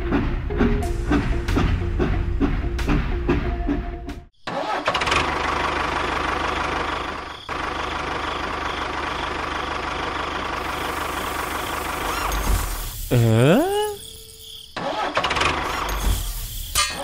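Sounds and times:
small tractor engine running: 0.2s - 13.4s, 14.8s - 16.5s.

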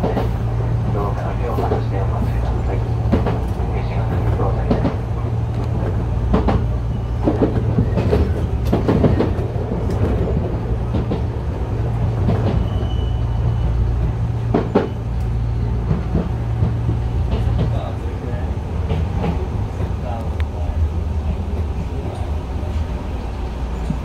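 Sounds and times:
electric train hum: 0.0s - 24.0s
wheels clicking over rail joints: 1.4s - 13.0s, 14.0s - 18.1s
high wheel squeal: 6.8s - 8.4s, 12.5s - 14.0s.

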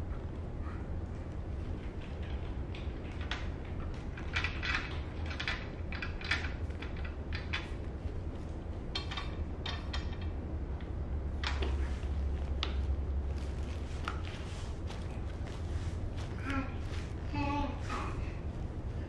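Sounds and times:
steady low hum: 0.0s - 19.0s
wooden toy clacking and rattling: 1.6s - 11.8s.

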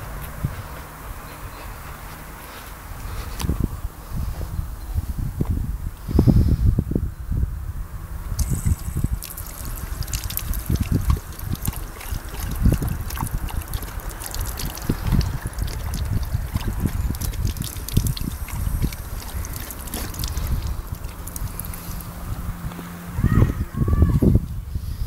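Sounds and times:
dog lapping water: 8.4s - 22.2s
water trickling from fountain: 8.4s - 22.6s.

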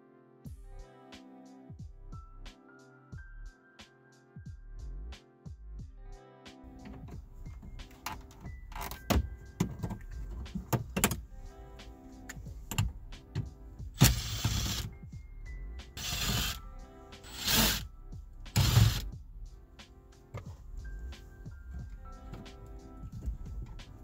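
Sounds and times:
background music: 0.0s - 24.0s
screwdriver rasping: 14.0s - 14.9s, 16.0s - 16.6s, 17.2s - 17.8s, 18.6s - 19.0s.

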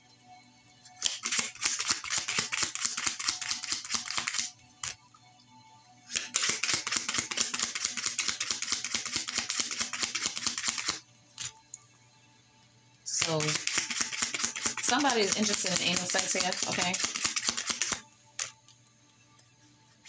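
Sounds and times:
cards being shuffled: 1.0s - 5.0s, 6.1s - 11.6s, 13.2s - 18.6s.

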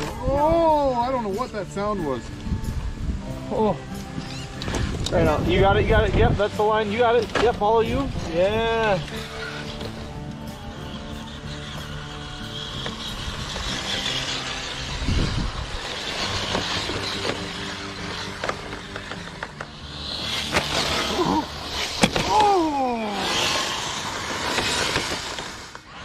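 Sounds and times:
electric motor hum: 1.8s - 26.0s
falling tones: 7.8s - 26.0s.

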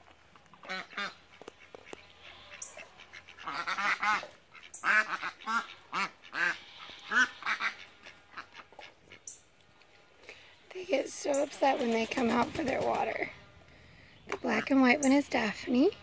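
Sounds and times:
ducks quacking harshly: 0.6s - 9.3s.

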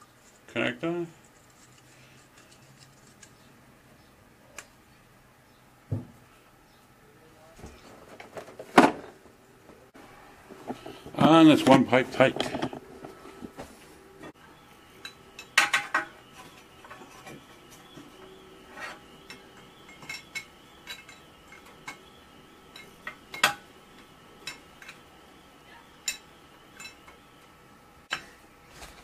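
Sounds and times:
metal tools clinking on pipe fittings: 18.8s - 22.1s, 22.7s - 23.6s, 26.0s - 27.2s.

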